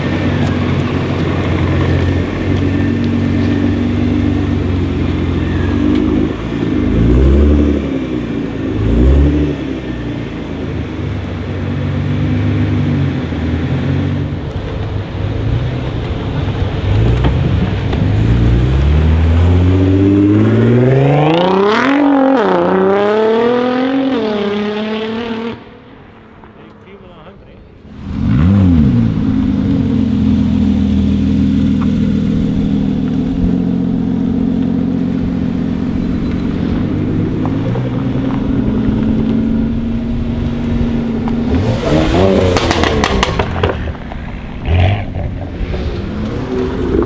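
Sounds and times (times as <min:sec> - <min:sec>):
car engine revving and accelerating: 0:00.0 - 0:26.0, 0:27.9 - 0:47.0.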